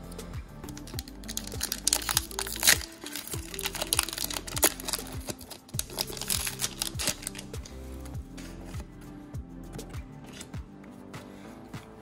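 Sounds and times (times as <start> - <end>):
background music: 0.0 - 12.0
foil wrapper crinkling: 0.7 - 7.6.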